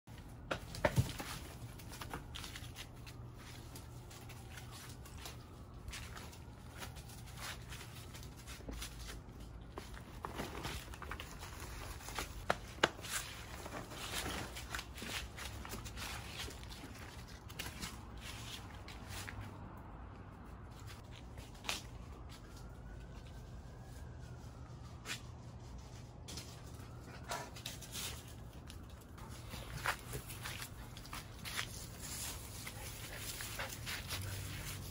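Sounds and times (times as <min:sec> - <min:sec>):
dry plant stalks rustling: 0:00.1 - 0:19.6, 0:27.8 - 0:34.9
puppy scrambling over leaves: 0:00.5 - 0:19.4, 0:21.0 - 0:34.9.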